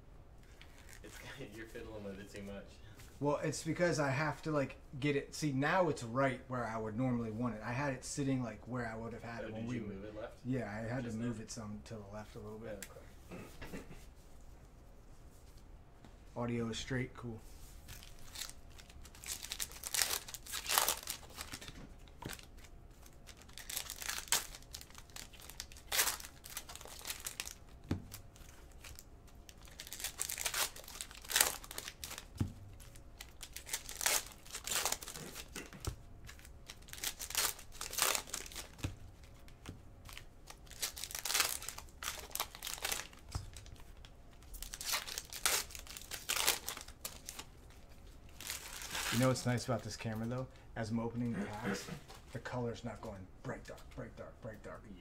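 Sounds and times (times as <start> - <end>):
card wrappers tearing and crinkling: 17.9 - 49.9.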